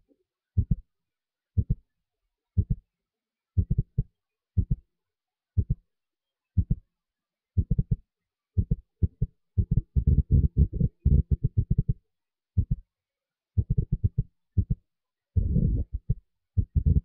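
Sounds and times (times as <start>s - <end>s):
low thumping beat: 0.6s - 0.8s, 1.6s - 1.8s, 2.6s - 2.8s, 3.6s - 4.0s, 4.6s - 4.8s, 5.6s - 5.8s, 7.6s - 8.0s, 8.6s - 12.0s, 13.6s - 14.8s, 15.4s - 17.0s.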